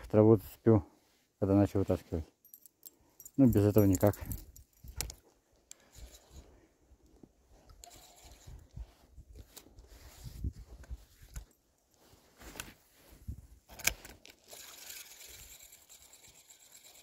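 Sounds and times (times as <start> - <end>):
fabric rubbing on microphone: 8.0 - 11.3.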